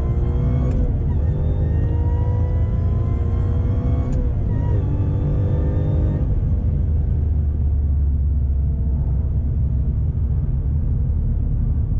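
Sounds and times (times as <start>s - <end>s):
deep engine rumble: 6.2s - 11.9s.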